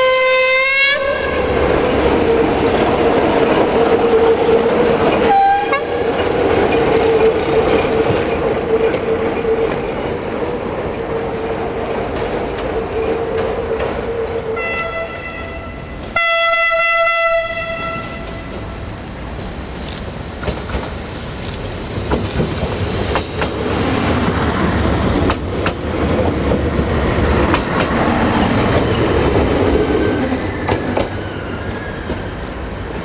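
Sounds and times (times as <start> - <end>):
train horn: 0.0 - 1.6, 5.2 - 6.1, 14.6 - 18.6.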